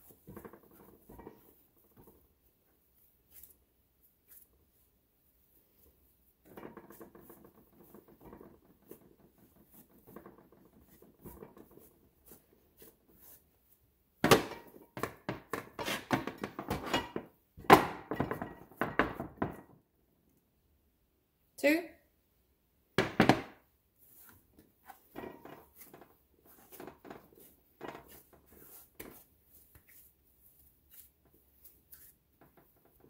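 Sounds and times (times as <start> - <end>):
hands rubbing and patting dough: 0.0 - 16.8, 23.6 - 33.0.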